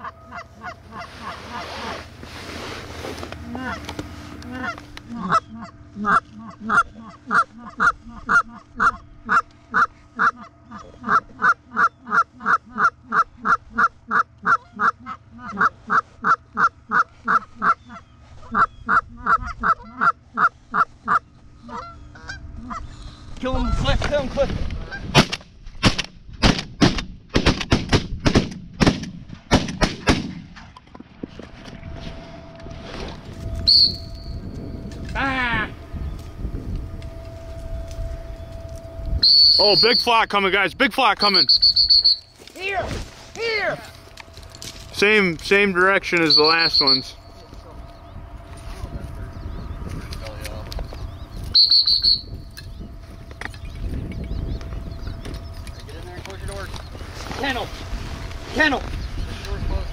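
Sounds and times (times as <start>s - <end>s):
geese honking: 0.0s - 24.0s, 43.6s - 58.8s
shotgun blasts: 25.1s - 30.5s.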